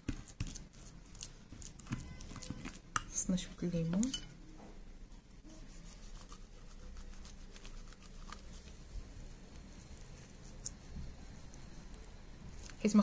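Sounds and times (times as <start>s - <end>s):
spoon stirring paste in glass bowl: 0.0s - 4.4s, 5.5s - 8.9s.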